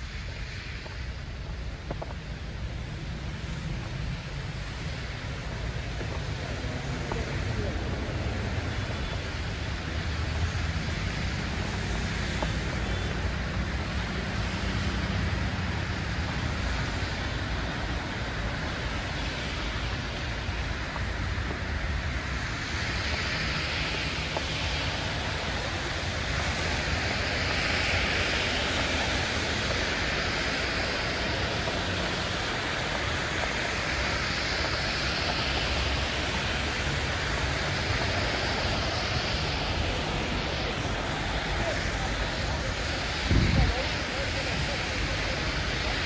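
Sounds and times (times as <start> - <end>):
street traffic rumble: 0.0 - 46.0
tyre hiss on wet road: 0.0 - 46.0.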